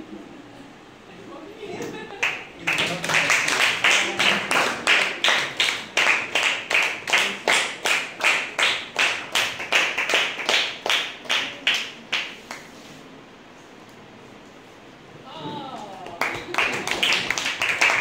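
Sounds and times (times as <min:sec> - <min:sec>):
hands clapping: 0:02.2 - 0:12.9, 0:16.0 - 0:18.0.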